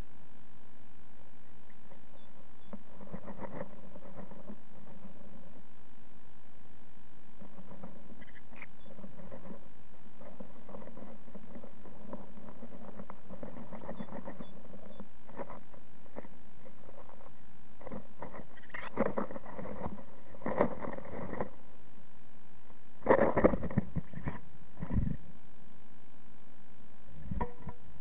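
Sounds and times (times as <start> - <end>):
steady background hiss: 0.0 - 28.0
bird scratching in nest: 1.7 - 5.6, 7.4 - 21.7, 23.0 - 25.3.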